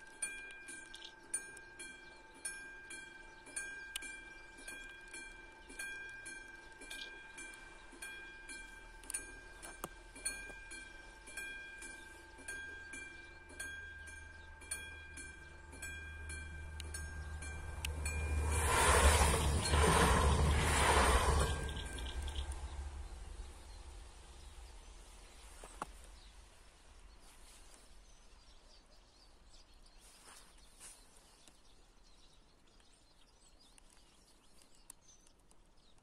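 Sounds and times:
level-crossing bell ringing: 0.2 - 23.0
train rumble: 3.1 - 26.9.

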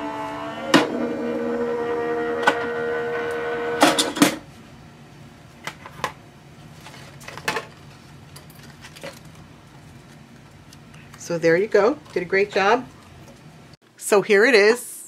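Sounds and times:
machine motor humming: 0.0 - 4.2.

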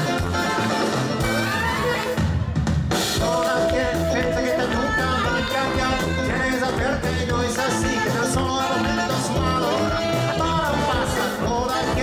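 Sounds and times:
live band playing dance music: 0.0 - 12.0
person singing: 3.2 - 12.0.

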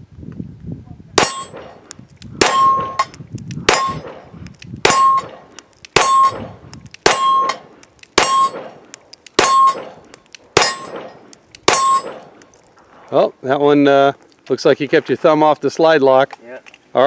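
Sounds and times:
pistol shots: 1.2 - 12.4
steel target ringing: 1.2 - 12.7.

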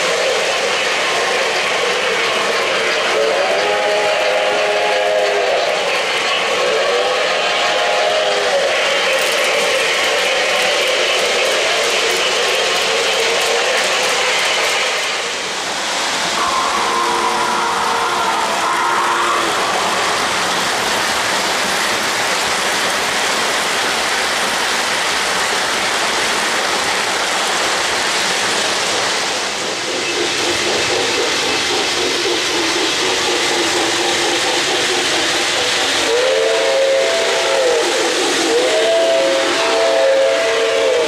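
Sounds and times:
model train wheels and motors rumbling: 0.0 - 41.0
locomotive whistle: 3.0 - 9.4, 16.4 - 20.6, 36.0 - 41.0.

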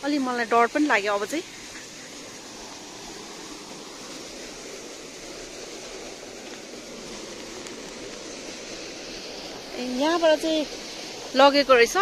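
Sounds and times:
fast water rushing: 0.0 - 12.0.

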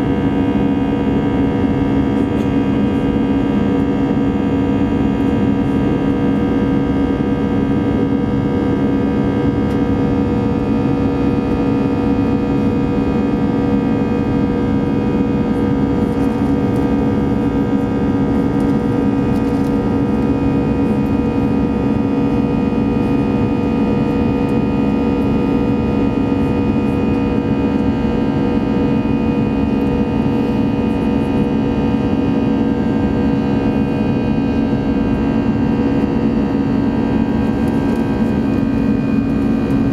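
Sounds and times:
jet engine drone and rushing air: 27.7 - 39.9.

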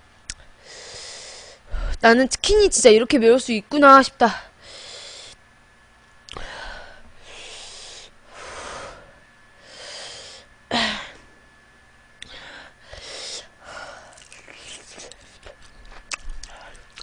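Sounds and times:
woman breathing hard: 0.6 - 2.0, 4.5 - 5.4, 6.4 - 11.3, 12.2 - 14.2
woman gasping: 6.3 - 11.3, 12.2 - 14.2.

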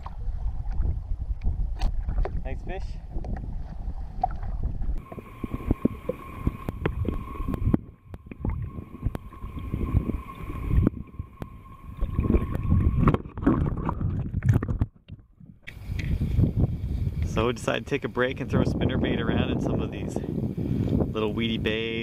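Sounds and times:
water sloshing and gurgling: 0.0 - 21.5
steady high whine: 5.0 - 13.9.

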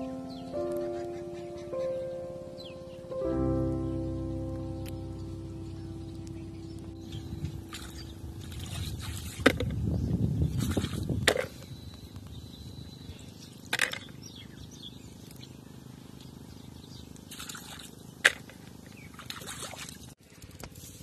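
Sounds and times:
quiet outdoor background: 0.0 - 21.0
water splashing over stones: 7.6 - 9.8, 17.3 - 20.2.

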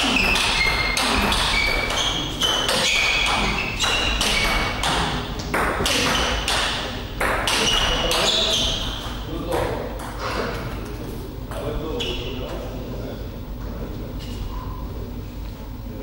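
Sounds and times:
table tennis ball hits: 0.0 - 10.7.

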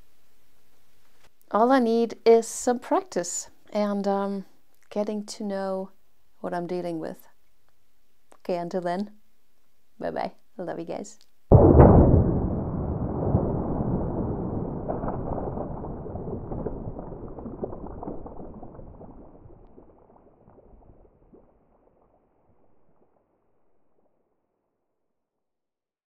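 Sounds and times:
crackling rushing noise: 11.5 - 24.0.

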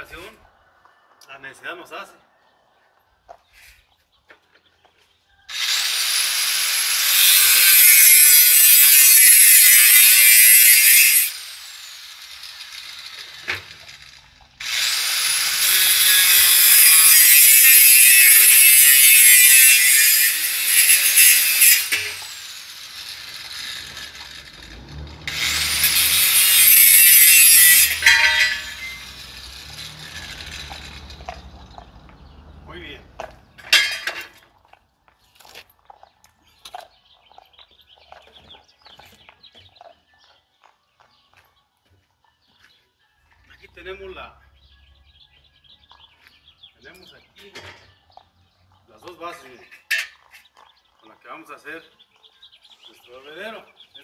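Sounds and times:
angle grinder cutting steel: 5.5 - 34.4.

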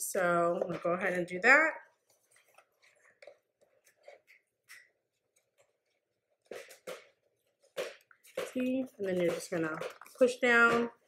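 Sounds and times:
cardboard rustling and tapping: 5.3 - 11.0.

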